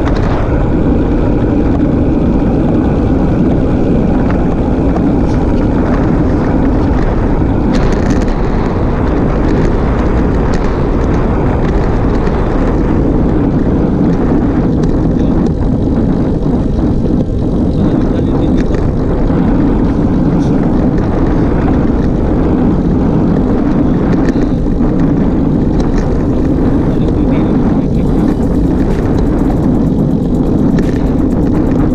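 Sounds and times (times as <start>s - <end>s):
bike tyres rolling on asphalt: 0.0s - 31.9s
wind buffeting microphone: 0.0s - 31.9s.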